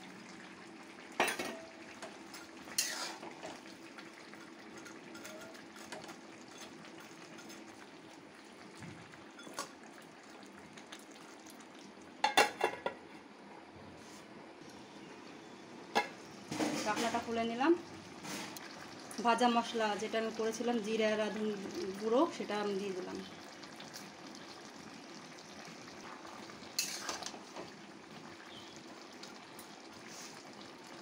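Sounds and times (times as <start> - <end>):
curry simmering: 0.0 - 13.4, 14.6 - 31.0
metal spatula scraping a pan: 2.4 - 3.4, 26.8 - 27.3
metal lid clanking on pan: 26.8 - 27.3.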